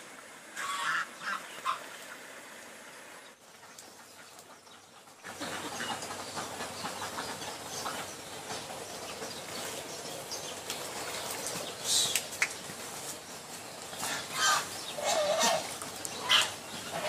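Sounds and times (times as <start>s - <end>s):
steady outdoor hiss: 0.0s - 17.0s
geese honking: 0.6s - 1.9s, 14.0s - 17.0s.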